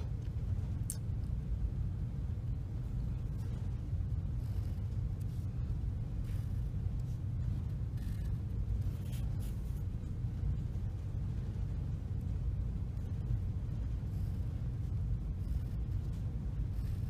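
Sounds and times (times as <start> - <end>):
low background rumble: 0.0 - 17.0
pencil scratching on paper: 4.3 - 5.5, 6.1 - 9.9, 16.7 - 17.0.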